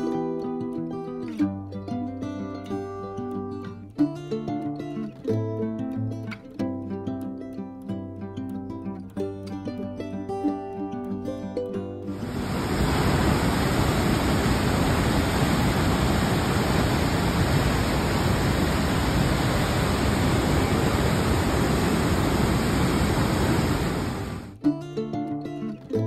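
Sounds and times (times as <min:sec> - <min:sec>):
waterfall crashing: 0:12.2 - 0:24.6.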